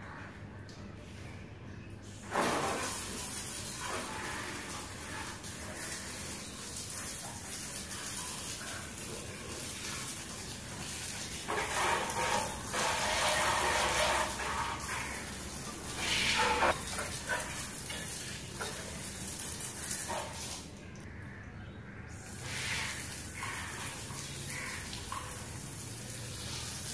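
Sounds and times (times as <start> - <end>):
hose spray gun water jet hissing: 2.2 - 8.4, 9.5 - 20.6, 22.3 - 24.8.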